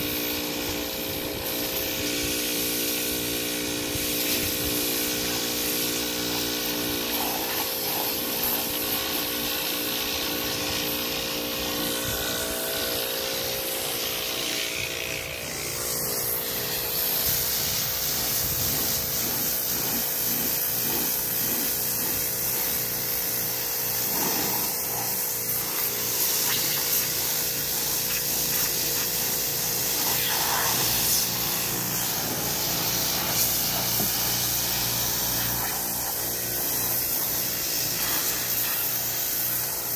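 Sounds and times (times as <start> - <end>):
pressure washer drone: 0.0 - 39.9
water jet hissing against hull: 16.0 - 39.9.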